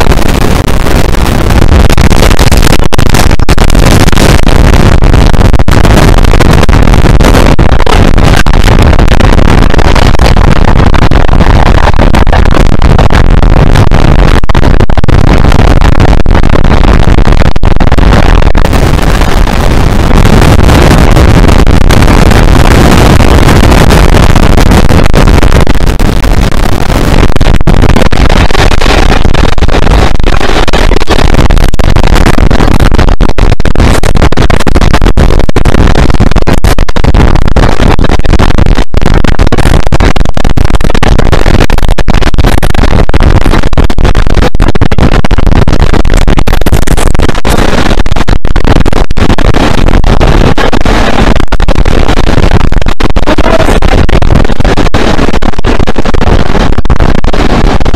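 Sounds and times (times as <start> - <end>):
wind buffeting microphone: 0.0 - 31.2.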